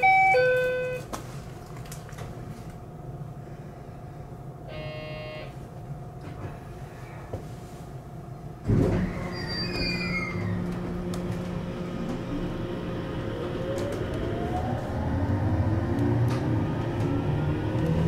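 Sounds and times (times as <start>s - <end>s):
train traction motors whining: 10.3s - 18.0s.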